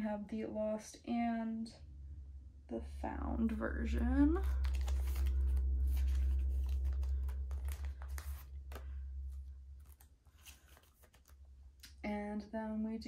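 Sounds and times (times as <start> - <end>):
plastic sleeves crinkling: 4.2 - 11.9.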